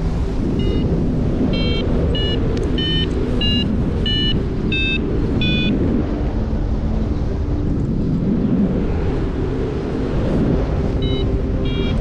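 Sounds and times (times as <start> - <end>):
wind rushing on microphone: 0.0 - 12.0
variometer short beeps: 0.6 - 0.8, 1.6 - 5.7, 11.0 - 12.0.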